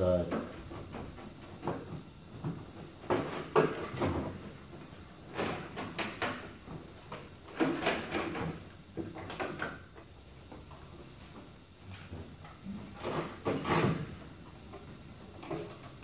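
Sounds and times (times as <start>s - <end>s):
plastic parts knocking and scraping: 0.3s - 4.4s, 5.3s - 9.8s, 12.0s - 14.3s.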